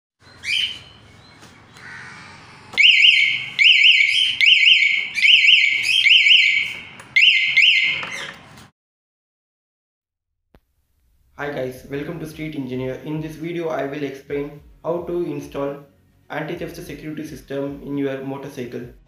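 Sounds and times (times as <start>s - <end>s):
alarm chirp: 2.8s - 8.3s
electronic alarm siren warble: 2.8s - 8.3s.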